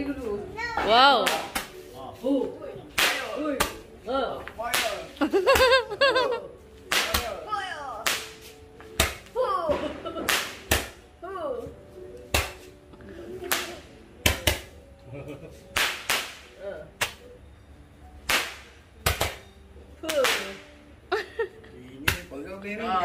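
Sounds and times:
firework tube pops: 0:01.2 - 0:01.7, 0:08.0 - 0:11.0, 0:12.3 - 0:12.7, 0:13.4 - 0:14.7, 0:15.7 - 0:17.2, 0:18.2 - 0:20.7.

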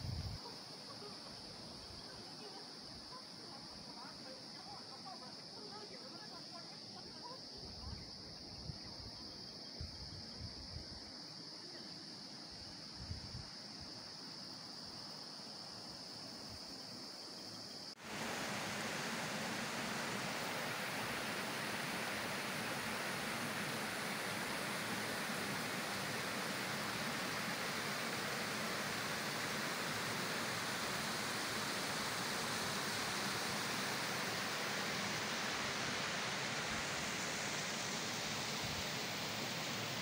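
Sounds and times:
steady outdoor rushing noise: 0:18.0 - 0:40.0.

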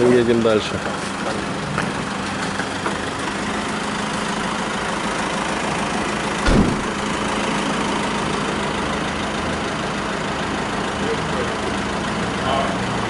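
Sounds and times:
minibus engine idling: 0:00.0 - 0:13.0
dull thump: 0:06.4 - 0:07.0.

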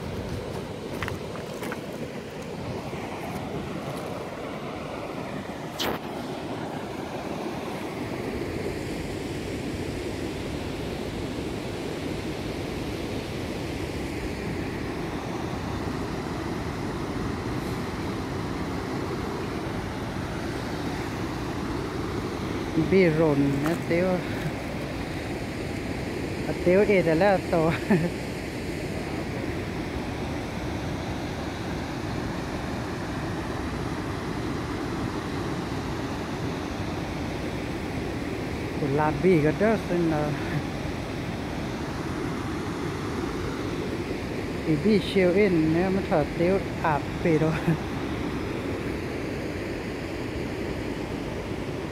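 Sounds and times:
river water pouring over a weir: 0:00.0 - 0:08.4
river water pouring over weir: 0:00.0 - 0:51.9.

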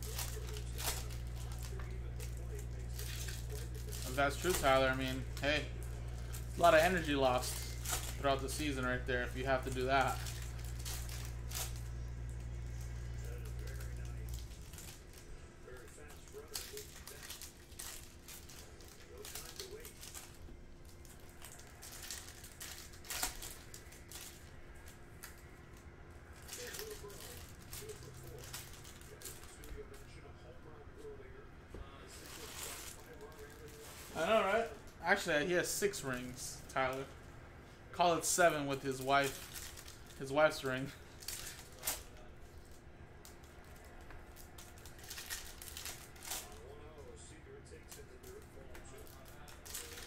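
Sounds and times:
cards being shuffled: 0:00.0 - 0:20.4
foil wrapper crinkling: 0:00.0 - 0:31.4, 0:32.0 - 0:37.1, 0:38.0 - 0:50.0.

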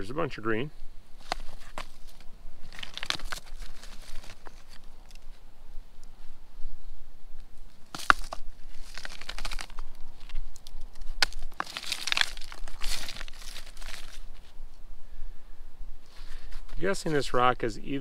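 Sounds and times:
rustling and scraping on rocks: 0:01.1 - 0:05.4, 0:07.5 - 0:14.6, 0:16.0 - 0:17.4
sharp rock clicks: 0:01.2 - 0:05.2, 0:07.9 - 0:14.4.

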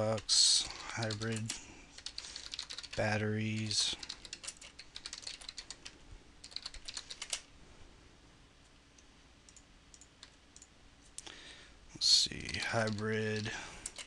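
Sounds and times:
computer keyboard typing: 0:00.8 - 0:07.5, 0:09.5 - 0:10.7, 0:12.3 - 0:14.0.

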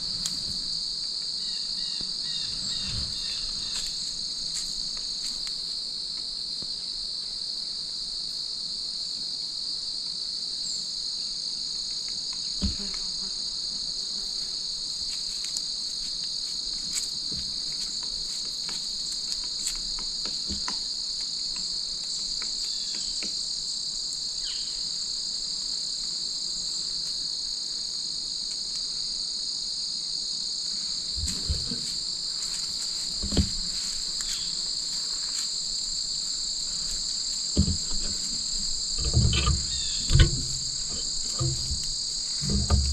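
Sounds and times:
crickets chirping: 0:00.0 - 0:42.9.

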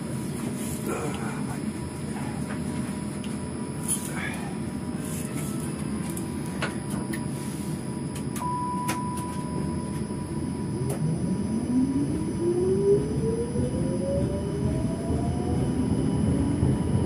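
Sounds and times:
tram rolling rumble: 0:00.0 - 0:08.4, 0:09.2 - 0:17.0
traction motor whine rising: 0:09.4 - 0:17.0.

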